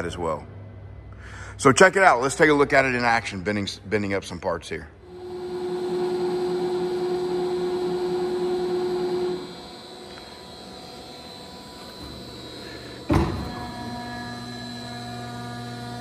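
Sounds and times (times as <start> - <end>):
machine hum: 4.9 - 16.0
multi-tone machine hum: 4.9 - 16.0
hydraulic pump whine: 5.0 - 16.0.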